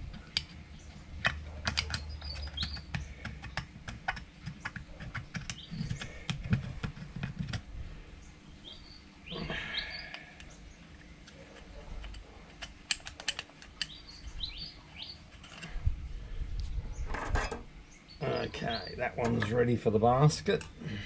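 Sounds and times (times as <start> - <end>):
faint bird chirps: 1.8 - 3.5, 8.1 - 12.0.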